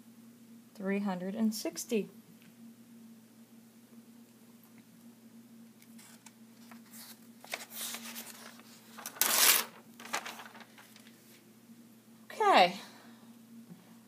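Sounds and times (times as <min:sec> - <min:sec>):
paper pages rustling: 0:05.8 - 0:11.4.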